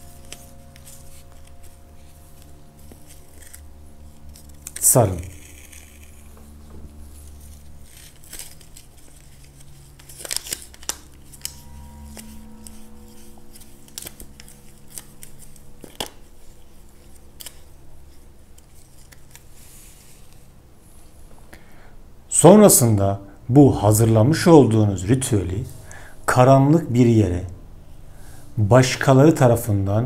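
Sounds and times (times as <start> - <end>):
paper rustling and crinkling: 0.0 - 20.5.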